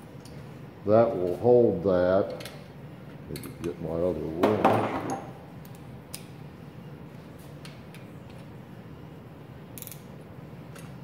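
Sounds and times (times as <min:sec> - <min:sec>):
steady low hum: 0:00.0 - 0:11.0
metallic wrench clicks: 0:09.8 - 0:10.1.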